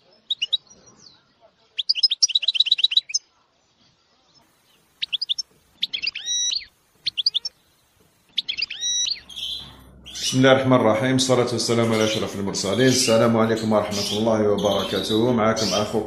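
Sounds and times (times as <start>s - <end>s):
songbird singing: 0.0s - 16.0s.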